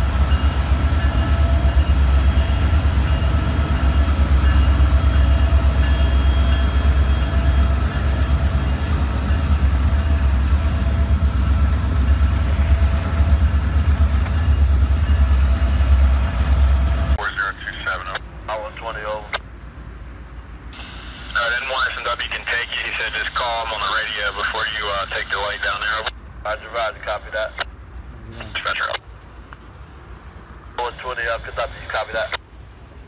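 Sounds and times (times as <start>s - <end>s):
train wheels rumbling on rails: 0.0s - 26.4s
faint steady whine: 0.0s - 33.0s.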